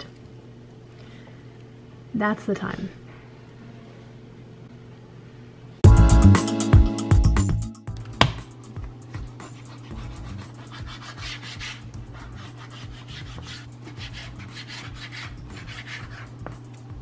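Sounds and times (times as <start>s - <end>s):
steady low hum: 7.9s - 17.0s.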